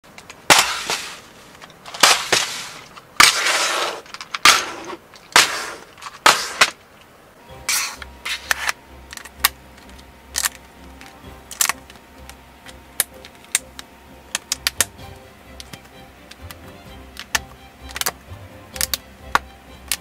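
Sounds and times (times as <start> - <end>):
plastic bricks clacking and rattling: 0.1 - 7.1, 15.6 - 18.2.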